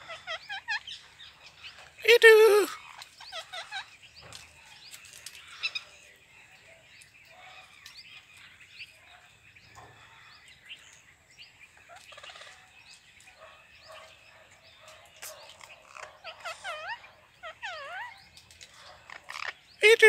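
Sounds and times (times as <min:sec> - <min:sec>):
parakeets chattering calls: 0:00.0 - 0:06.0, 0:13.3 - 0:20.0.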